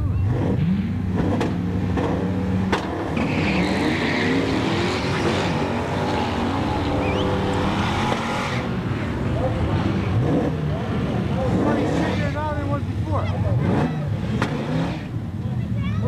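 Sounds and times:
car engines revving: 0.0 - 16.0
tire squeal: 2.1 - 9.1.

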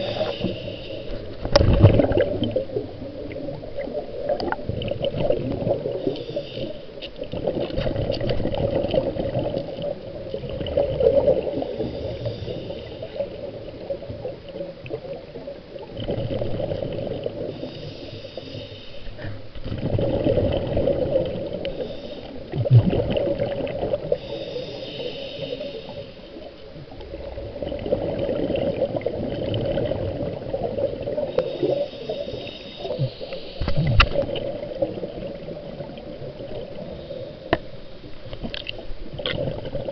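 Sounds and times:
regulator inhale hiss: 0.0 - 1.5, 5.8 - 7.2, 11.4 - 13.8, 17.4 - 19.5, 21.5 - 22.6, 24.0 - 26.5, 31.2 - 33.9, 36.7 - 37.9
exhaled bubbles burbling: 1.4 - 6.1, 7.2 - 12.2, 13.1 - 17.6, 19.6 - 21.8, 22.4 - 24.2, 26.8 - 31.4, 32.9 - 37.0, 38.3 - 39.9.

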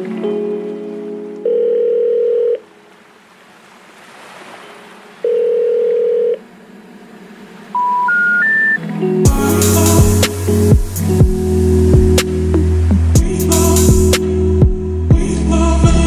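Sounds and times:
rising telephone tones: 1.4 - 2.6, 5.2 - 6.4, 7.7 - 8.8
telephone beeps: 5.2 - 6.4, 7.8 - 8.8.

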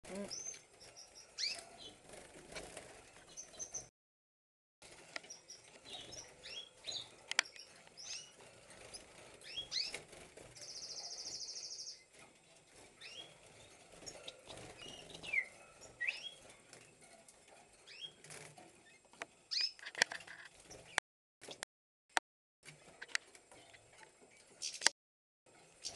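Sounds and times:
finch singing: 0.1 - 2.0, 5.2 - 12.1, 13.0 - 16.5.

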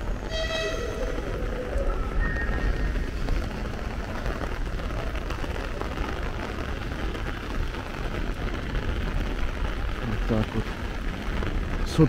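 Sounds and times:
rain hiss: 0.0 - 12.0
train horn: 0.2 - 1.4.

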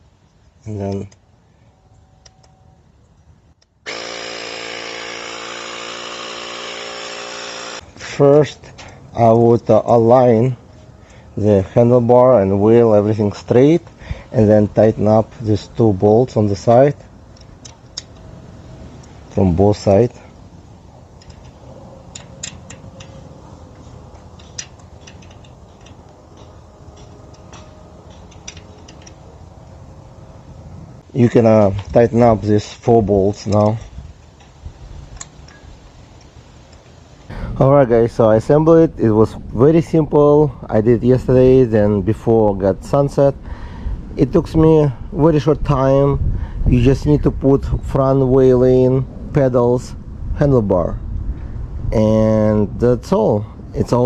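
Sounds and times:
electric tire inflator running: 3.9 - 7.8
tool clicking on bolts: 21.2 - 23.2, 24.1 - 29.2.

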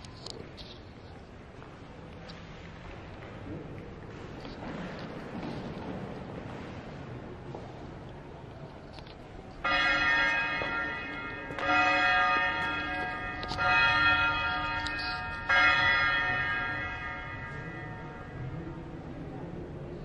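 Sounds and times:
church bell tolling: 9.6 - 19.1.

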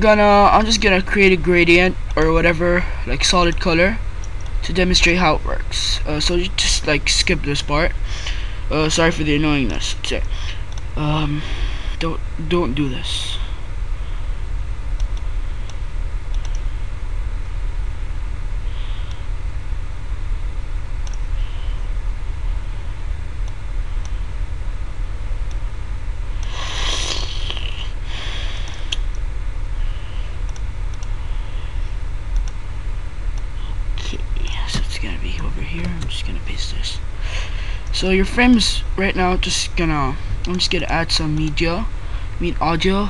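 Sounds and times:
low background hum and rumble: 0.0 - 43.0
faint clicks: 14.9 - 16.7, 21.0 - 21.2, 32.3 - 32.6.

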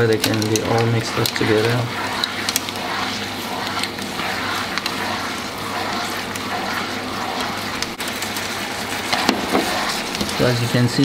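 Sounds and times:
utensil clicking against pan: 0.0 - 5.2
sauce sizzling and bubbling: 0.0 - 11.0.

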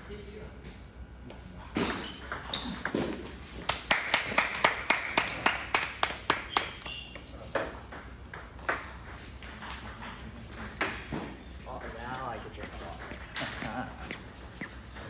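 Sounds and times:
table tennis ball bouncing: 1.8 - 3.7, 7.5 - 15.0.

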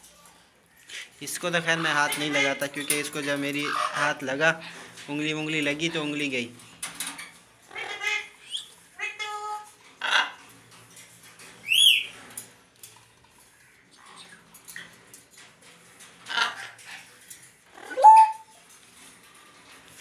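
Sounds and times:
parrot squawking: 3.6 - 4.2, 7.7 - 10.4, 16.3 - 16.8, 17.7 - 18.5
parrot whistling: 17.9 - 18.5.

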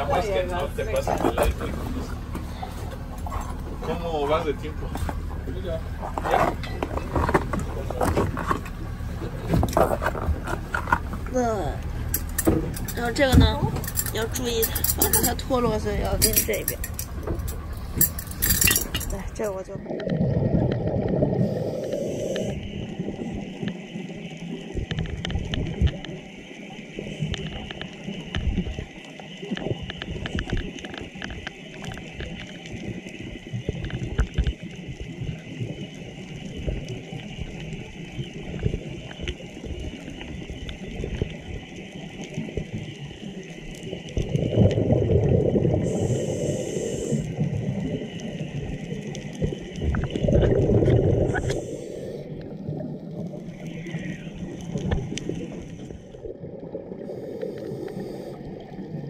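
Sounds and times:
muffled water noise: 0.0 - 59.0
regulator exhaling bubbles: 19.4 - 23.6, 44.1 - 59.0.

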